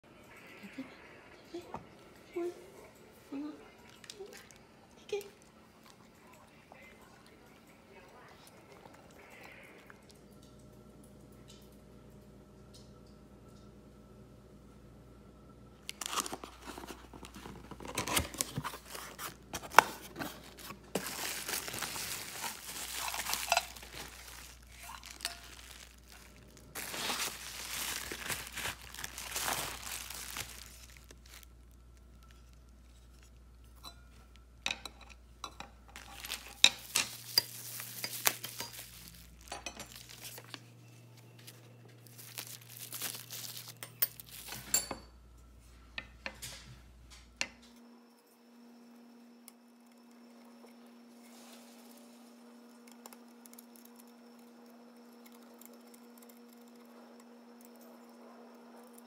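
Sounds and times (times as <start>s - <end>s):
plastic wrapping crinkling: 15.8s - 33.4s, 35.9s - 44.9s
cardboard and tape tearing: 15.9s - 31.4s, 36.0s - 40.6s, 42.0s - 44.6s.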